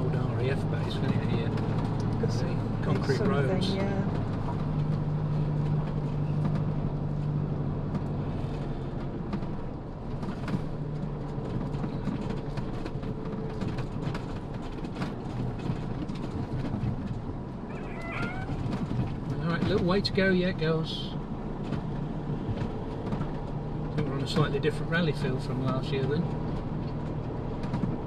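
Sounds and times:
low engine hum: 0.0s - 28.0s
small rattles and knocks: 0.1s - 28.0s
tyre noise: 10.2s - 20.1s.

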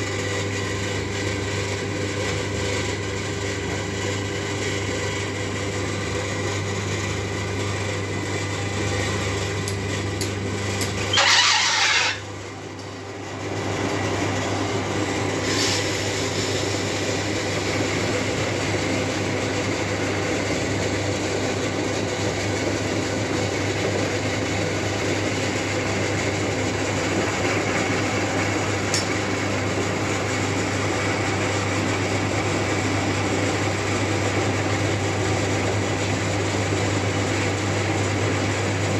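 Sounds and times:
loud harsh noise: 11.1s - 12.3s.

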